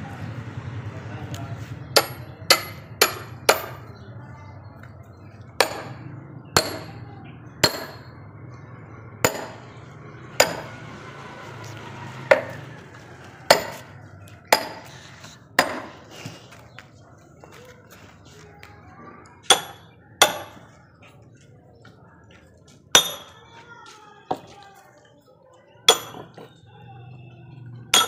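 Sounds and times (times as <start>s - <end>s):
hammer striking steel wedge: 2.0s - 3.8s, 5.6s - 6.0s, 6.6s - 7.0s, 7.6s - 8.2s, 9.2s - 9.6s, 10.4s - 10.7s, 12.3s - 12.6s, 13.5s - 13.9s, 14.5s - 14.9s, 15.6s - 15.9s, 19.5s - 20.6s, 23.0s - 23.3s, 25.9s - 26.3s.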